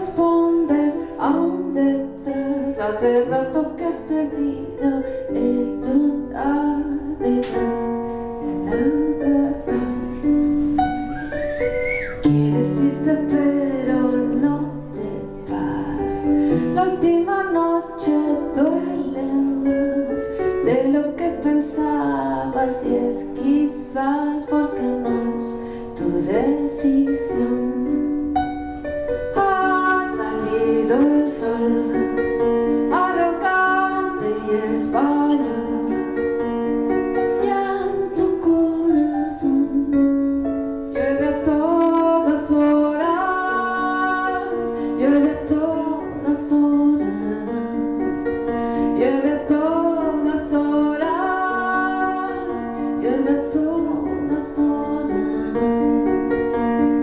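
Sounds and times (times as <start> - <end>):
woman singing: 0.0 - 11.0, 12.0 - 28.4, 29.1 - 57.0
keyboard playing: 41.4 - 44.2.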